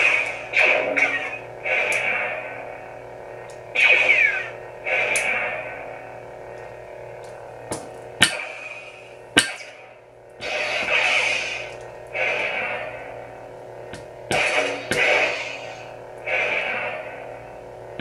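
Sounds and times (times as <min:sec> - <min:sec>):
hissing effect bursts: 0:00.0 - 0:02.8, 0:03.8 - 0:06.2, 0:08.2 - 0:09.8, 0:10.4 - 0:13.2, 0:14.3 - 0:17.3
lightsaber clash effects: 0:00.0 - 0:02.9, 0:03.6 - 0:06.2, 0:08.2 - 0:13.4, 0:14.0 - 0:17.3
lightsaber electric hum: 0:00.0 - 0:18.0.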